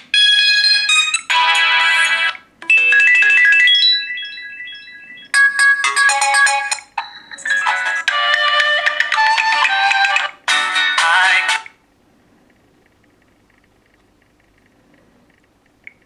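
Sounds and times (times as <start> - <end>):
synthesized ringtone melodies: 0.2 - 11.7.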